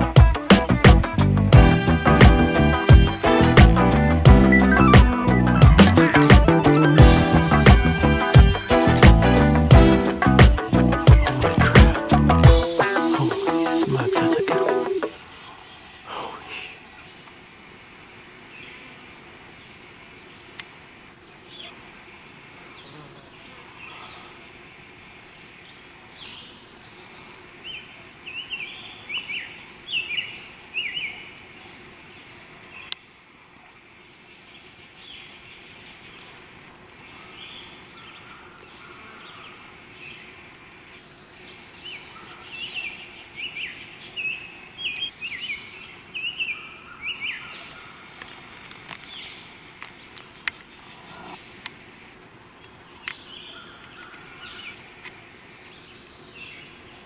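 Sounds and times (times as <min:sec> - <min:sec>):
high insect buzz: 0:00.0 - 0:17.1, 0:22.8 - 0:23.6
songbird chirping: 0:00.0 - 0:17.1, 0:37.1 - 0:51.8, 0:52.6 - 0:57.0.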